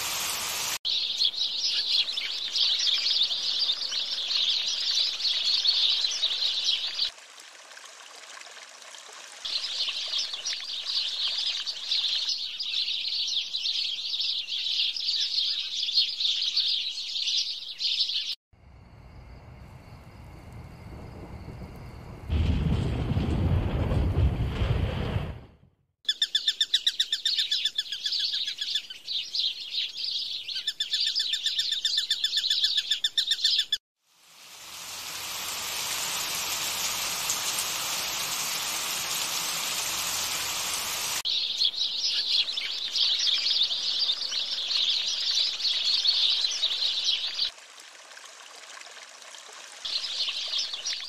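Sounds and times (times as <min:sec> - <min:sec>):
steady hiss: 0:00.0 - 0:00.8, 0:34.2 - 0:41.2
birds chirping: 0:00.0 - 0:07.1, 0:34.9 - 0:47.5.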